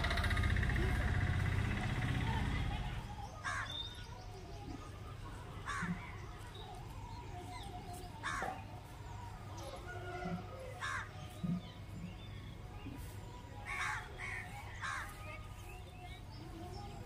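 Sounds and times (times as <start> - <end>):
crow cawing: 3.4 - 3.8, 5.7 - 6.0, 10.8 - 11.1.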